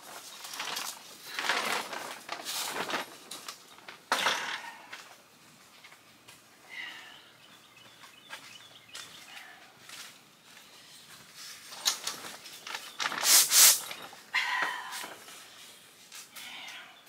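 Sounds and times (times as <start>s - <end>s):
fabric wall rustling: 0.0s - 4.9s, 11.0s - 15.7s.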